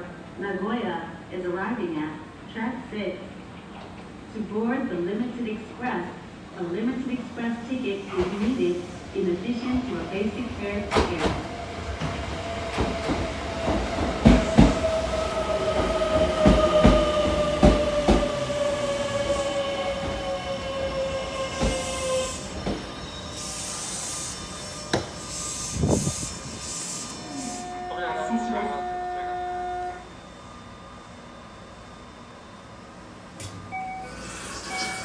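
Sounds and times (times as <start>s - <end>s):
train inverter whine: 9.2s - 35.0s.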